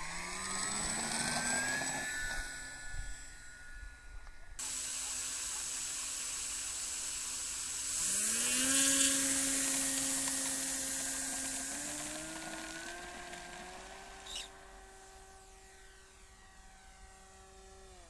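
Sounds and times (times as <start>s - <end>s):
electric motor whine: 0.0s - 18.0s
steady hiss: 4.6s - 16.0s.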